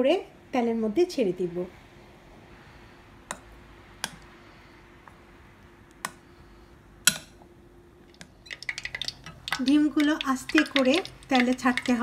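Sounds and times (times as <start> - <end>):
faint steady hum: 0.0 - 12.0
egg clicking against glass bowl: 8.1 - 12.0.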